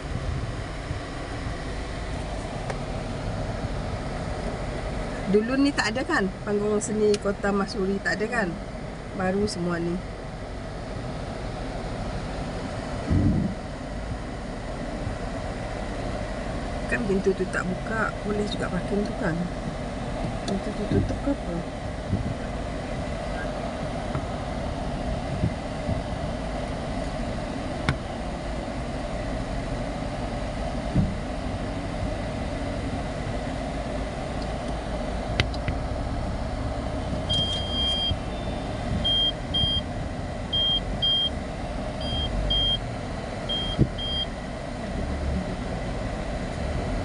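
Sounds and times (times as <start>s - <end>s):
car engine and road noise: 0.0s - 47.0s
parking sensor beeps: 37.2s - 39.9s, 40.5s - 41.4s, 42.0s - 42.9s, 43.5s - 44.4s.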